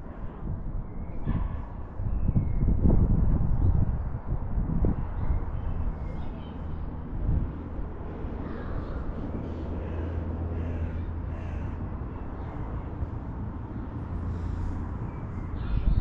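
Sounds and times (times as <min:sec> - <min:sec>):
faint bird calls: 0:08.4 - 0:13.1.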